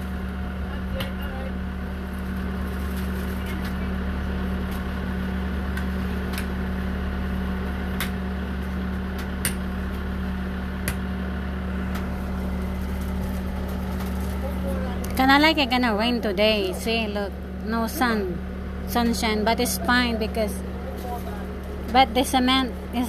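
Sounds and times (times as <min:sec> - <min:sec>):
low engine hum: 0:00.0 - 0:23.0.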